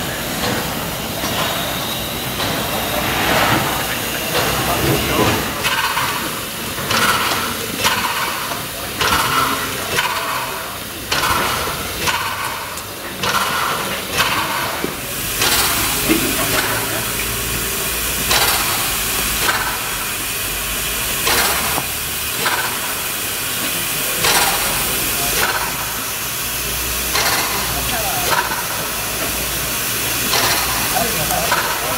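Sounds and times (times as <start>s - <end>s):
loud hiss of steam: 0.0s - 31.9s
steam locomotive exhaust chuffing: 0.0s - 31.9s.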